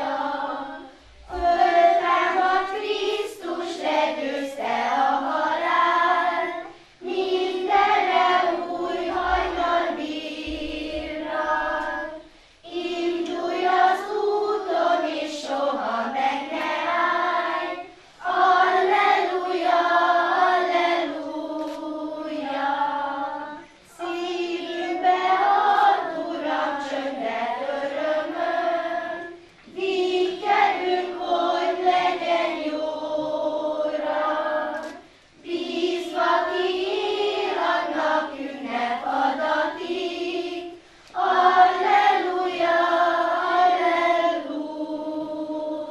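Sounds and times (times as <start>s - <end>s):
children's choir singing: 0.0s - 45.9s.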